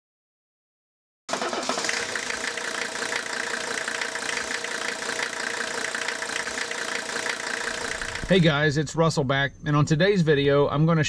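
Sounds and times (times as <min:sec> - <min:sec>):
pickup engine idling: 0:01.3 - 0:08.4.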